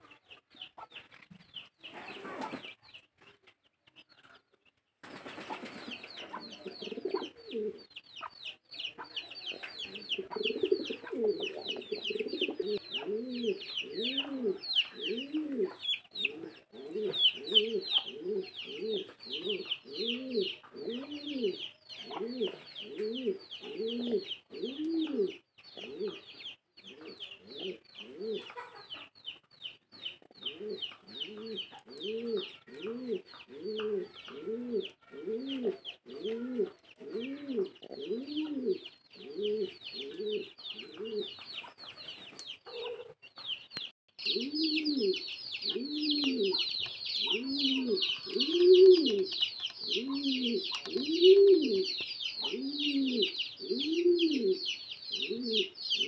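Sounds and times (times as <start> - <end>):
baby pigeons peeping: 0.0 - 56.0.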